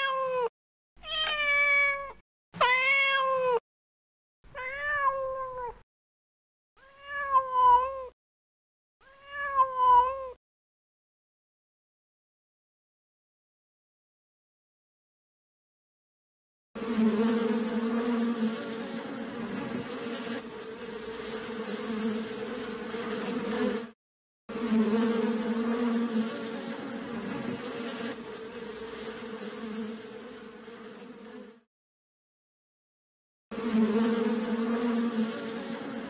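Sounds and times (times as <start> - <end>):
honeybee swarm buzzing: 16.8 - 31.6, 33.6 - 36.0.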